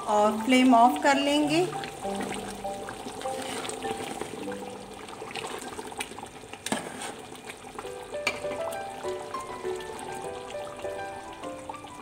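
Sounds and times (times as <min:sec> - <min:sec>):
stew bubbling and sizzling: 0:00.0 - 0:12.0
spoon stirring in pot: 0:01.7 - 0:04.6, 0:05.2 - 0:07.4.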